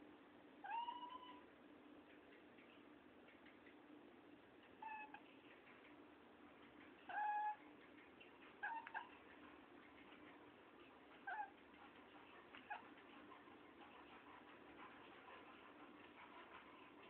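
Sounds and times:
cat chirping meows: 0.6s - 1.5s, 4.8s - 5.2s, 7.1s - 7.6s, 8.6s - 9.1s.

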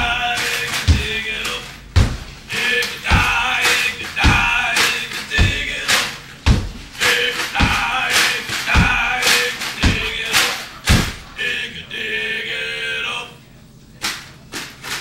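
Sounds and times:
man singing: 0.0s - 1.8s, 2.5s - 6.2s, 7.0s - 13.4s
foot stomps on wooden floor: 0.0s - 2.5s, 3.1s - 5.8s, 6.4s - 11.4s.

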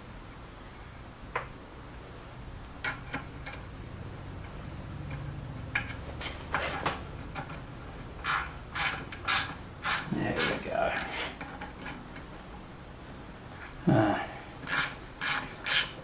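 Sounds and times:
clicks and knocks of handled parts: 4.4s - 7.6s, 11.0s - 12.4s.

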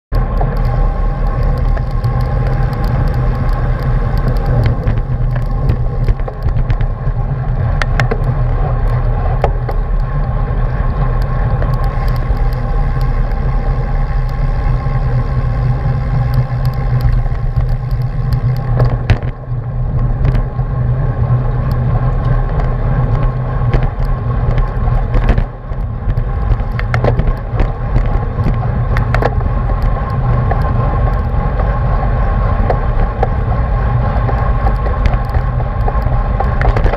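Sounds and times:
road rumble: 0.0s - 36.9s
wind on microphone: 0.1s - 36.9s
sharp clicks: 0.2s - 6.9s, 11.1s - 19.4s.

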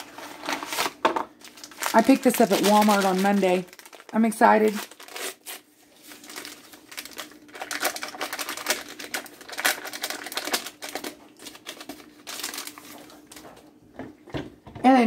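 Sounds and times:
paper pouch rustling and crinkling: 0.0s - 13.4s.

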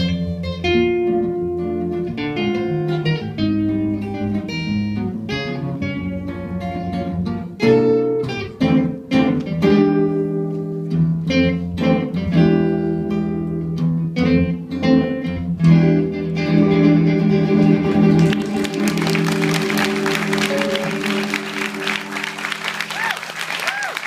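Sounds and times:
guitars strumming chords: 0.0s - 23.1s
applause: 18.2s - 24.0s.

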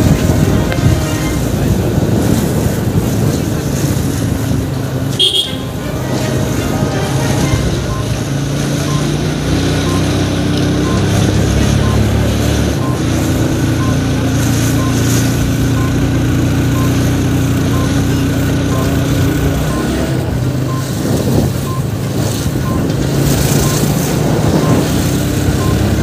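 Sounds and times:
vehicle engines humming: 0.0s - 26.0s
reversing alarm beeping: 5.2s - 26.0s.

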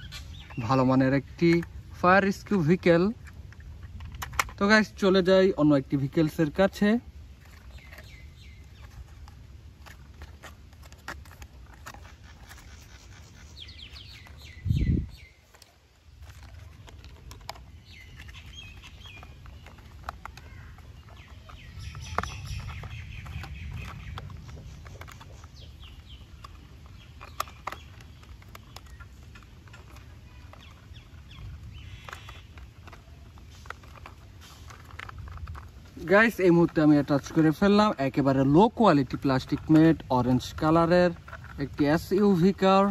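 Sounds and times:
birds calling: 0.0s - 42.9s
plastic toy parts clicking: 1.2s - 5.3s, 15.5s - 42.9s.

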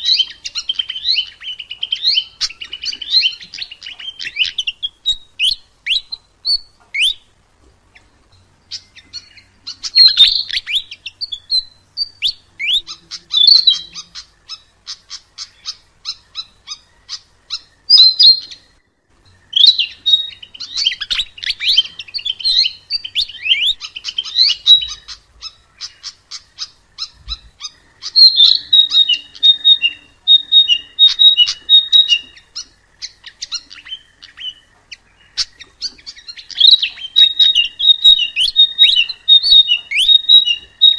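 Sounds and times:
flycatcher singing: 0.0s - 40.9s.

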